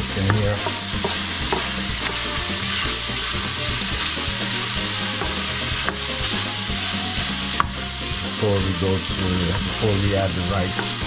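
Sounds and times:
food sizzling in oil: 0.0 - 11.0
spoon stirring in a pot: 0.2 - 8.4.

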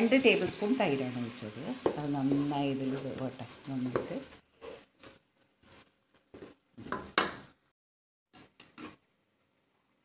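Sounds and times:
wooden spatula scraping pot: 1.7 - 7.1.

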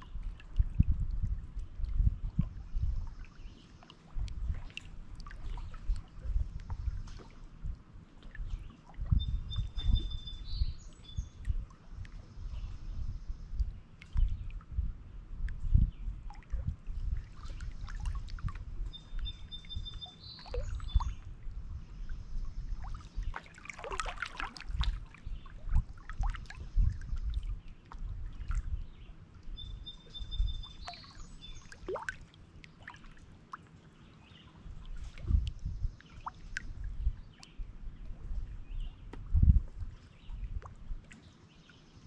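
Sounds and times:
songbird singing: 8.5 - 14.6, 15.2 - 33.2, 33.9 - 42.0
waves lapping against rocks: 22.9 - 26.6.

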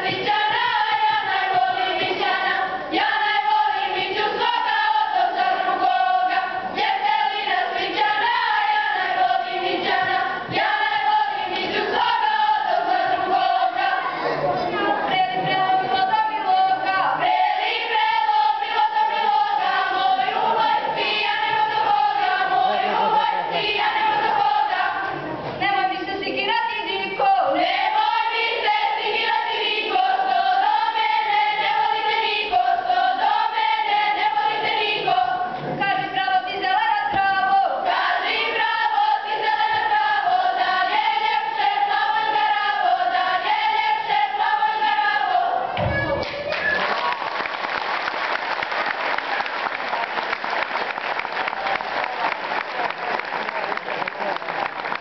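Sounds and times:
girls' choir singing unaccompanied: 0.0 - 46.5
audience applause: 46.2 - 55.0.

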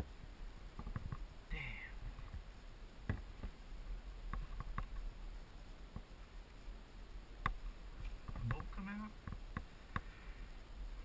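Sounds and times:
clicks and knocks from bike: 7.4 - 10.1.

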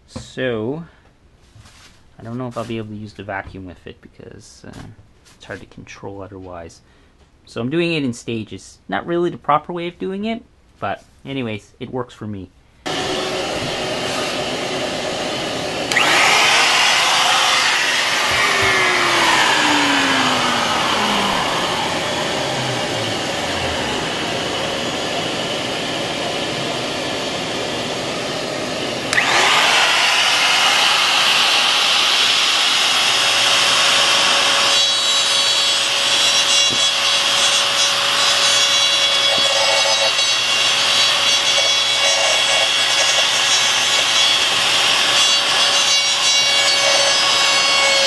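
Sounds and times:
router motor: 12.9 - 48.0
shop vacuum running: 12.9 - 48.0.

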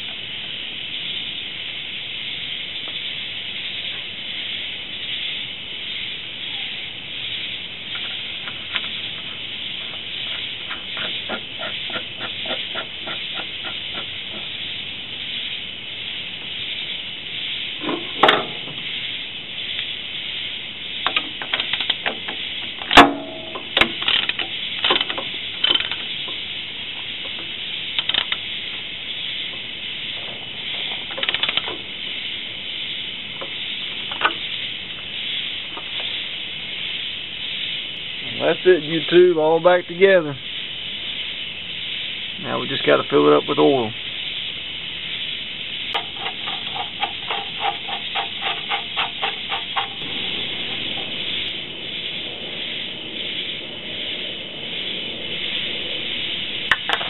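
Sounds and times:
steady hiss: 0.0 - 57.0
sharp metal clicks and knocks: 21.0 - 26.4, 28.0 - 28.4, 31.1 - 31.8, 46.0 - 50.2.

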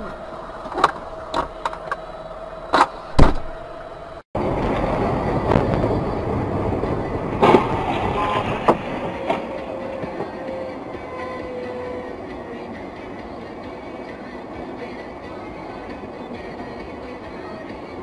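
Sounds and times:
rumbling road noise: 0.0 - 18.0
heavy thump: 3.1 - 3.6.

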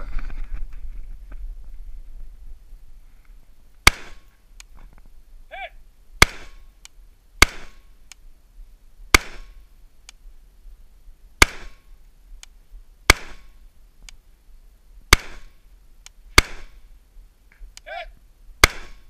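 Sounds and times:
rifle shots with echo: 3.8 - 4.3, 6.2 - 6.7, 7.4 - 7.9, 9.1 - 9.6, 11.4 - 11.9, 13.1 - 13.6, 15.1 - 15.6, 16.3 - 16.8, 18.6 - 19.0.

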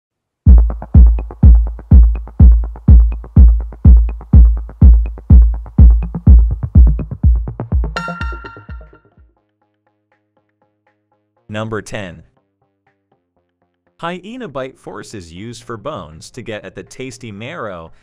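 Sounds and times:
drum machine kick: 0.5 - 9.0
electronic dance music: 0.5 - 9.1
bright chiming hit: 8.0 - 9.1.

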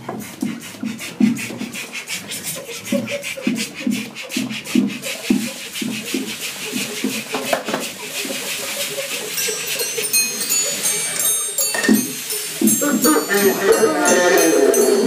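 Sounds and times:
metal cutlery and tins struck: 11.6 - 14.7
rhythmic low pulses: 12.7 - 15.0
squealing balloon tones: 12.7 - 15.0.

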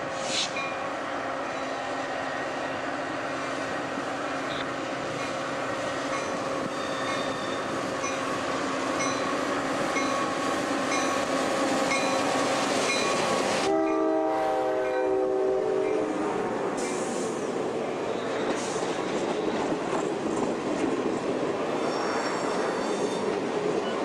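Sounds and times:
train engine and wheel rumble: 0.0 - 24.0
train air horn chord: 13.6 - 16.3.

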